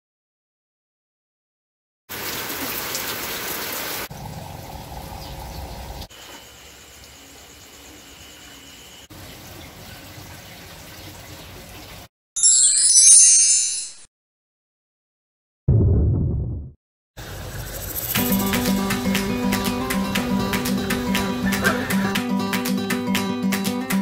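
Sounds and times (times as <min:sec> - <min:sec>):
aquarium water bubbling: 0:04.1 - 0:06.1.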